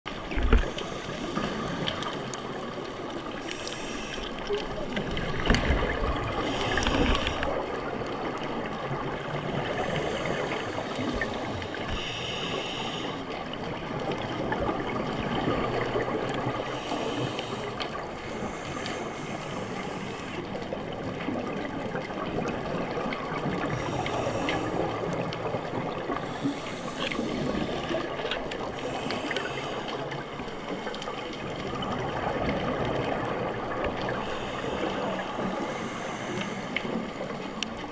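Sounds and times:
exhaled bubbles gurgling: 0.1s - 37.9s
regulator inhale hiss: 0.5s - 4.6s, 6.2s - 7.7s, 9.7s - 13.4s, 16.6s - 20.6s, 23.6s - 25.5s, 26.1s - 31.6s, 34.0s - 37.6s.

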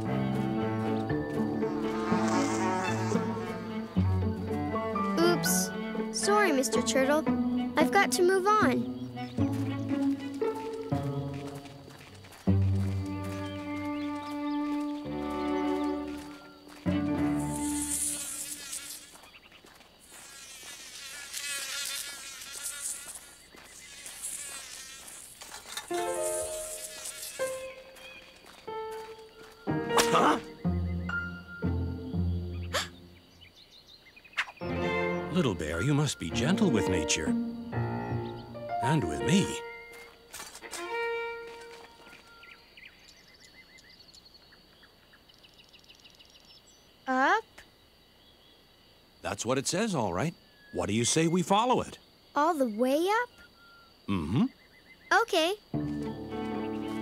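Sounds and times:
mosquito buzzing: 0.1s - 30.6s, 34.6s - 42.6s
sustained string notes: 2.8s - 11.9s, 34.6s - 39.8s
bird chirps and trills: 2.9s - 11.2s, 21.9s - 25.3s, 26.0s - 39.9s, 52.5s - 57.0s.

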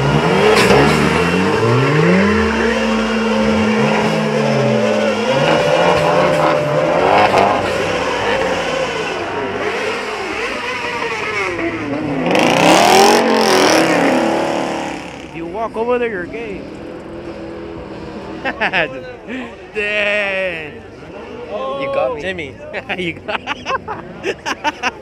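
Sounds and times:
car engine revving: 0.0s - 18.5s.

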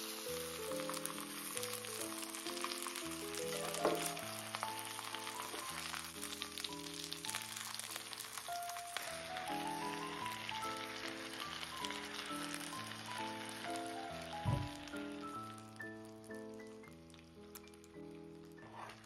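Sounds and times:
background music: 0.0s - 19.0s
food sizzling in frying pan: 0.0s - 19.0s.

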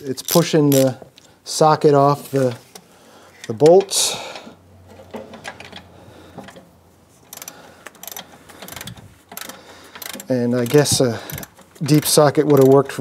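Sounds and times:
socket ratchet clicking: 0.2s - 1.3s, 7.3s - 13.0s.

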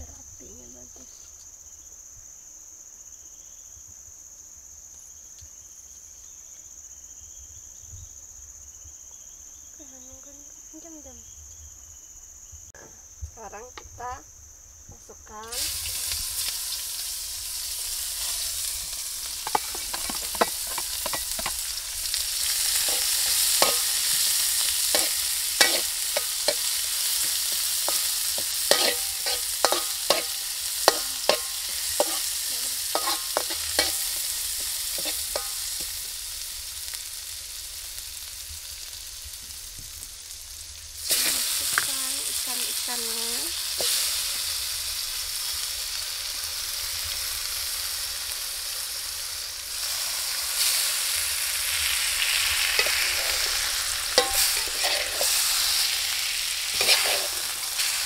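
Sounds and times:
fish frying in hot oil: 15.3s - 58.0s
spatula scraping a pan: 17.5s - 36.2s, 41.1s - 42.4s, 51.7s - 58.0s.

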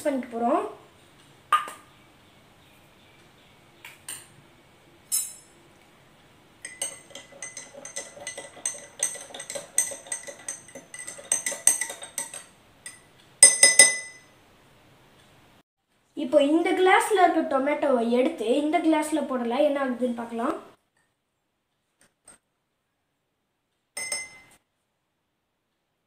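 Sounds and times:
spoon clinking against glass: 6.6s - 14.3s, 24.0s - 24.6s.

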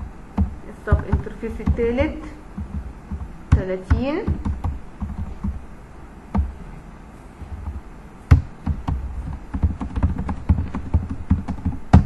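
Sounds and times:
typing on computer keyboard: 2.6s - 5.6s, 8.3s - 12.0s.

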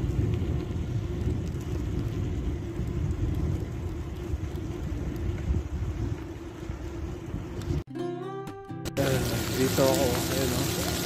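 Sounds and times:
bike rattling ticks: 0.0s - 7.8s
bike tyres rolling on bricks: 0.0s - 7.9s, 9.0s - 11.0s
wind buffeting microphone: 0.0s - 7.9s.

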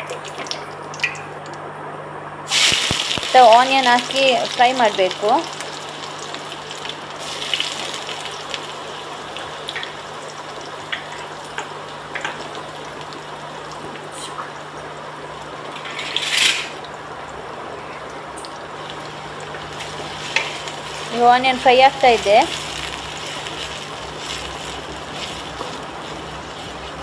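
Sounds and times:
small crackles and pops: 0.0s - 1.6s, 2.5s - 4.5s, 5.1s - 14.9s, 22.1s - 27.0s
onions sizzling in hot oil: 2.5s - 27.0s.

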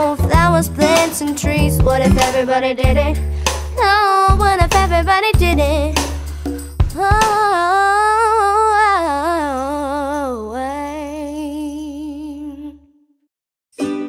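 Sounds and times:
plucked-string music: 0.2s - 4.6s, 13.8s - 14.0s.

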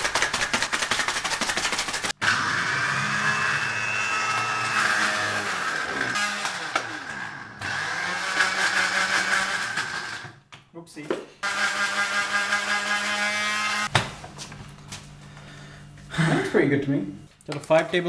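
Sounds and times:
blender motor whine: 2.2s - 10.4s, 11.4s - 13.9s.

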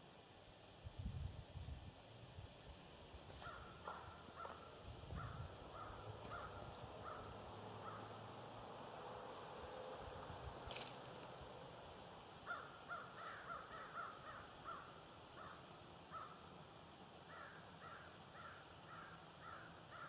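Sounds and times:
small birds chirping: 2.5s - 9.0s, 12.0s - 20.0s
crow cawing: 5.2s - 8.2s, 12.4s - 16.4s, 17.3s - 20.0s.

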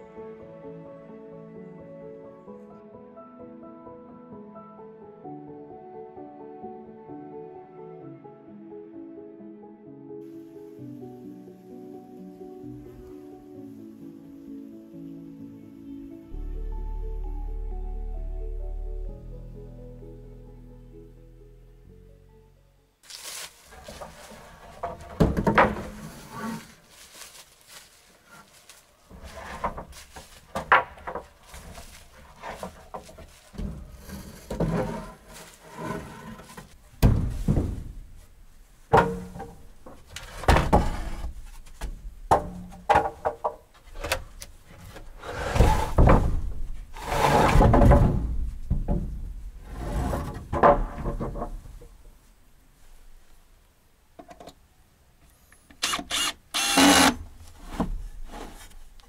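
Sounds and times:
irregular knocks and thumps: 23.8s - 26.0s, 29.1s - 34.9s, 36.6s - 43.9s, 47.6s - 49.7s, 50.3s - 52.1s.

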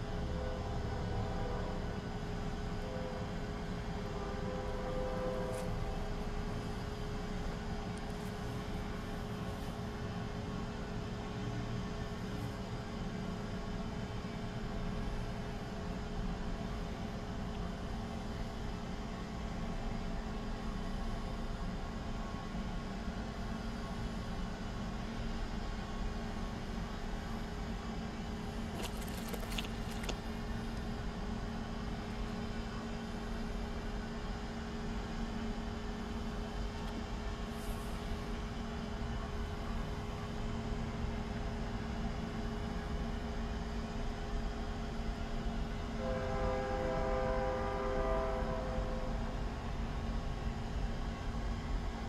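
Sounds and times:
distant train horn blast: 0.2s - 2.1s, 2.7s - 6.2s, 46.0s - 49.4s.

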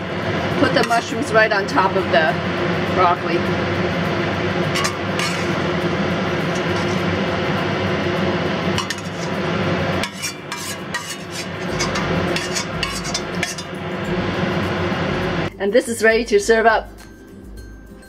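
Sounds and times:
steady rushing background noise: 0.0s - 15.5s
spatula scraping a wok: 4.8s - 7.3s, 8.6s - 13.8s.

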